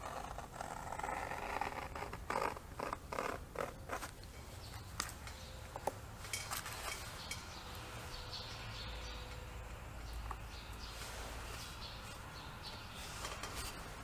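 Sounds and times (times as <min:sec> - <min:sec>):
light clicks of metal parts: 0:04.2 - 0:07.8.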